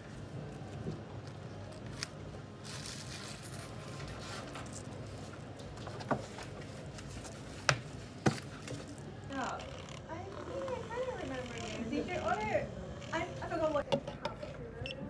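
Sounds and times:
plastic film crinkling: 0.0 - 9.3.

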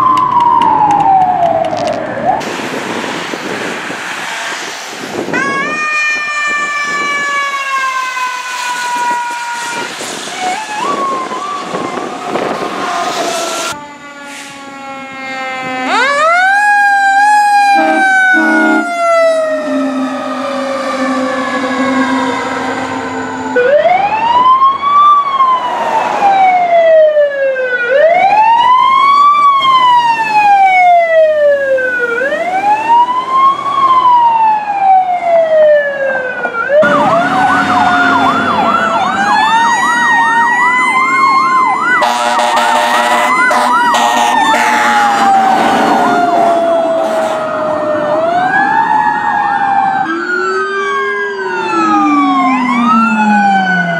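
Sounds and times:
electronic siren wail: 0.0 - 2.4, 5.2 - 53.9
fast siren yelp: 0.0 - 2.4, 5.3 - 53.9
siren winding down: 0.0 - 2.5, 5.2 - 53.9
vehicle horn blasts: 17.7 - 18.9, 42.0 - 45.3.

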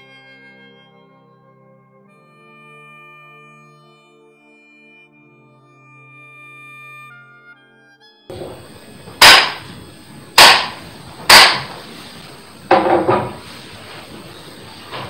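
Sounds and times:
bamboo clapper cracks: 9.2 - 9.8, 10.4 - 11.8
wooden clatter on desk: 12.7 - 15.0.

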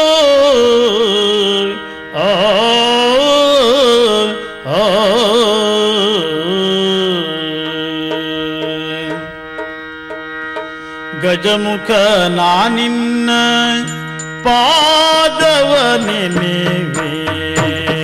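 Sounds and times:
steady drone: 6.0 - 17.6
person singing ornamented phrase: 11.1 - 18.0.

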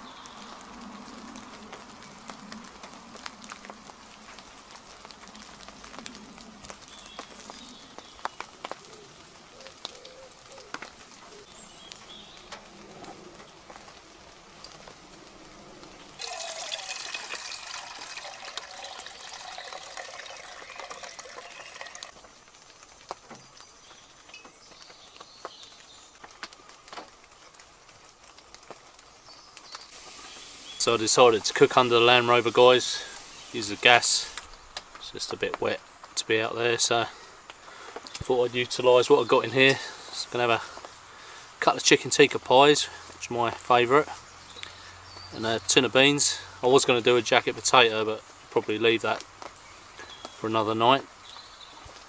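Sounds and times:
birdsong: 0.0 - 1.2, 6.0 - 13.8, 17.5 - 22.1, 22.9 - 27.6, 29.0 - 35.4, 42.8 - 47.0, 49.1 - 52.0
soft hiss: 1.6 - 52.0
wood pigeon cooing: 5.3 - 13.9
birds calling: 6.1 - 13.8, 16.9 - 22.1, 44.1 - 46.2, 49.4 - 52.0
water drips ticking: 16.2 - 23.7.

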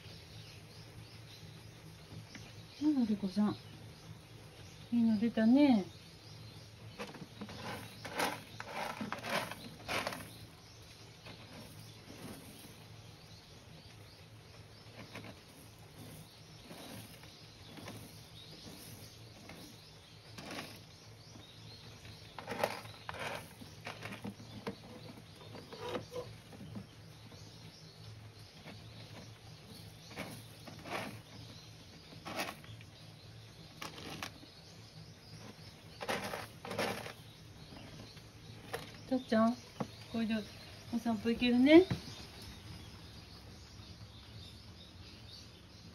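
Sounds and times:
cat digging in litter: 6.9 - 27.1, 28.5 - 32.9, 33.6 - 34.6, 35.3 - 39.4.

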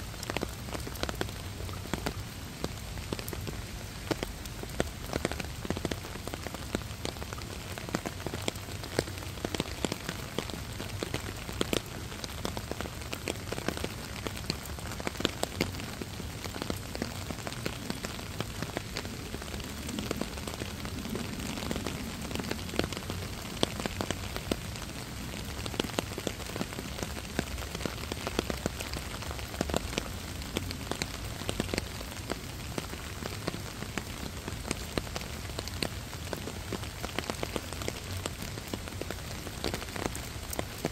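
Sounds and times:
raindrops hitting close by: 0.0 - 40.9
steady rain hiss: 0.0 - 40.9.

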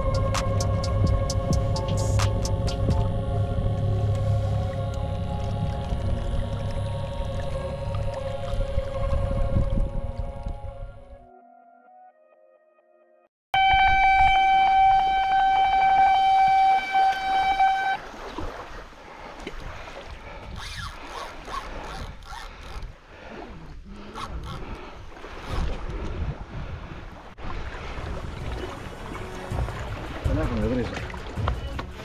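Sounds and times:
wind noise: 8.6 - 11.2, 24.2 - 30.4
electronic bite alarm tone: 13.6 - 18.0.

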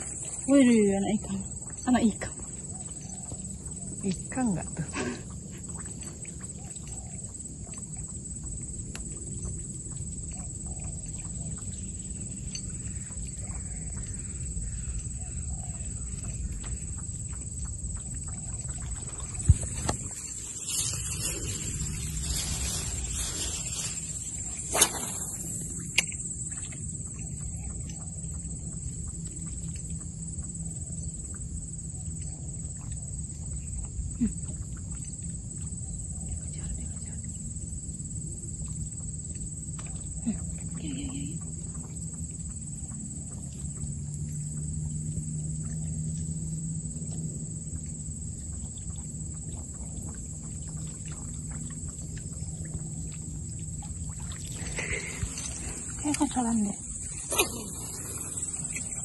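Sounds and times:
high-pitched insect drone: 0.0 - 59.0
faint ticks: 1.2 - 20.1, 25.7 - 37.6
wind rumble: 13.0 - 27.4.

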